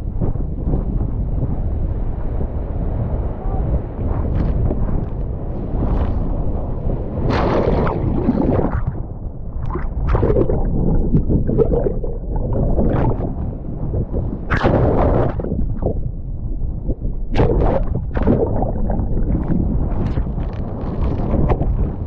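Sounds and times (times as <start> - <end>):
wind buffeting microphone: 0.0 - 22.0
water splashing: 7.3 - 13.4, 17.3 - 21.2.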